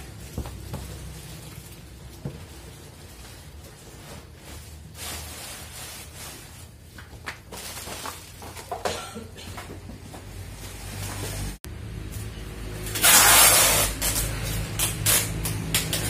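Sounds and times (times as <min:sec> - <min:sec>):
plastic wrapping crinkling: 0:00.0 - 0:08.8.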